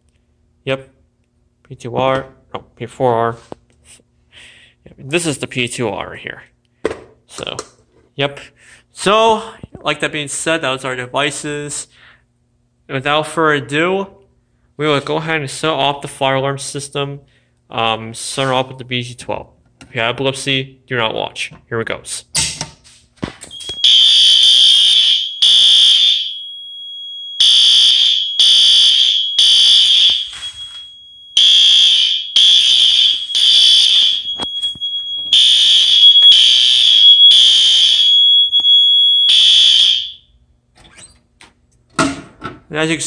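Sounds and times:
fire alarm horn blasts: 23.5 - 40.4.

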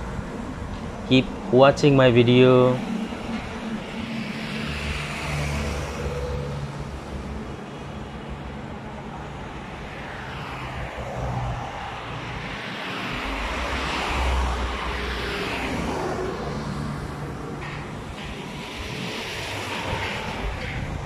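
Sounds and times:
highway traffic passing: 0.0 - 21.0.

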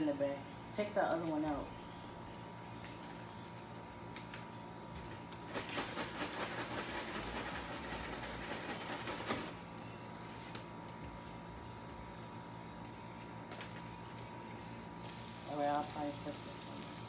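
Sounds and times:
hot oil sizzling and crackling: 15.0 - 17.0.

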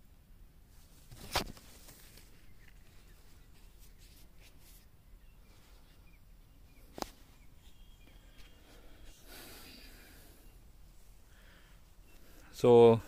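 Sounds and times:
faint high chirps: 4.8 - 10.7, 11.5 - 13.0
breathy rush of noise: 7.5 - 12.7.

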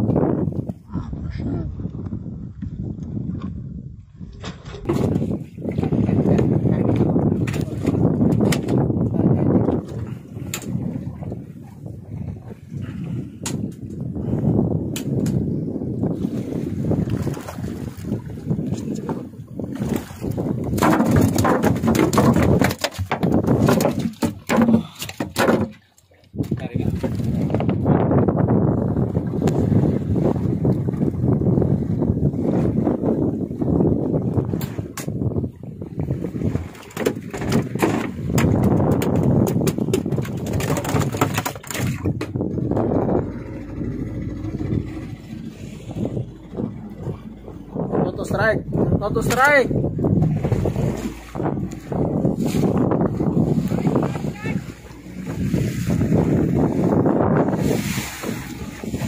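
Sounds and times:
wind buffeting microphone: 0.0 - 59.0
sea noise: 4.0 - 59.0
knocks and slaps: 20.6 - 27.2, 36.8 - 43.0.

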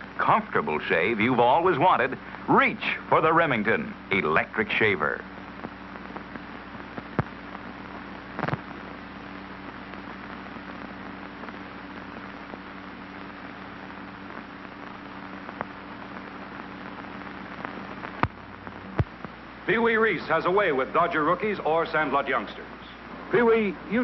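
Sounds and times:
film soundtrack hiss: 0.0 - 24.0
clicks and pops: 7.0 - 7.4, 8.3 - 8.7, 18.0 - 19.4.

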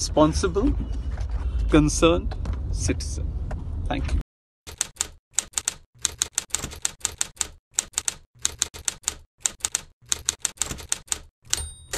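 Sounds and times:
typewriter keys clacking: 4.7 - 11.9.

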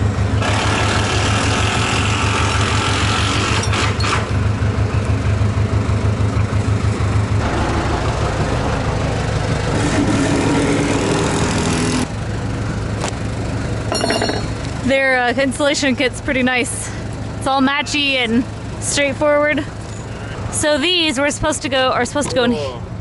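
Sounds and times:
engine humming: 0.0 - 23.0.

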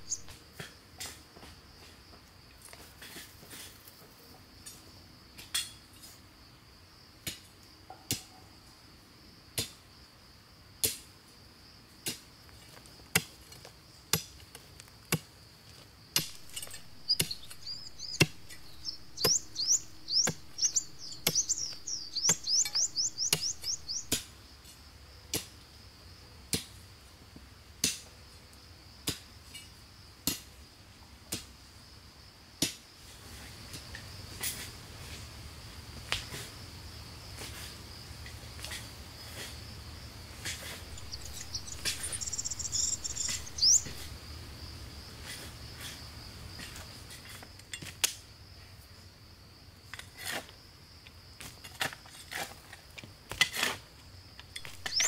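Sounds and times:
bird trilling chirps: 0.0 - 0.3, 16.2 - 24.2, 40.9 - 44.1, 54.6 - 55.0
hand tool striking wood: 13.1 - 15.3, 16.2 - 24.3, 40.4 - 44.1, 54.6 - 55.0
high insect drone: 15.4 - 25.0, 33.4 - 47.7.

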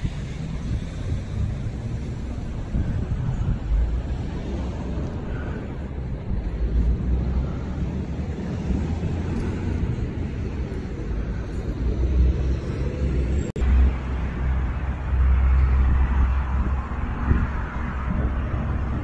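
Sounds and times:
outdoor noise: 0.0 - 19.0
wind buffeting microphone: 0.0 - 19.0.

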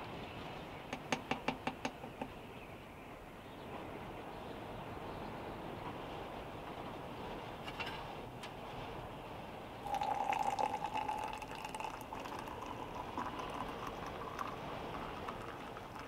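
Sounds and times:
hot water pouring into mug: 9.8 - 16.0.

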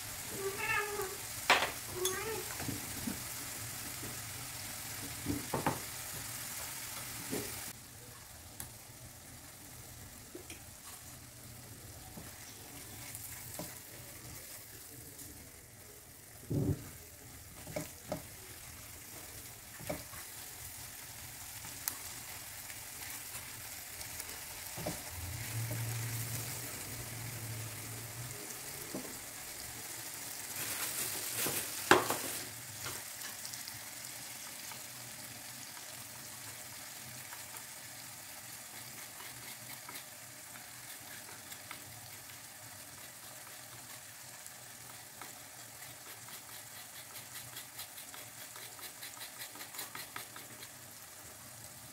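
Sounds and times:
chili paste sizzling in a pan: 0.0 - 51.9
wooden spatula tapping: 17.6 - 18.3.

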